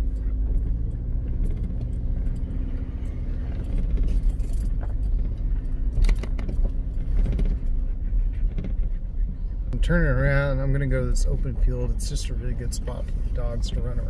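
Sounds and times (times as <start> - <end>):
pickup engine low rumble: 0.0 - 14.0
clicks and rattles: 1.2 - 8.9.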